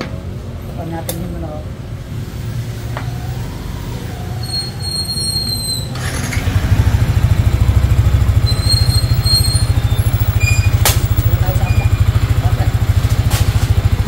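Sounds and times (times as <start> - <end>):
motorcycle engine idling: 6.0 - 14.0.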